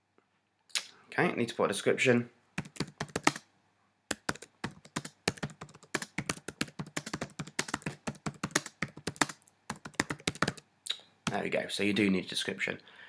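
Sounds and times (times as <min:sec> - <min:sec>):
computer keyboard typing: 0:02.6 - 0:03.4, 0:04.1 - 0:10.6.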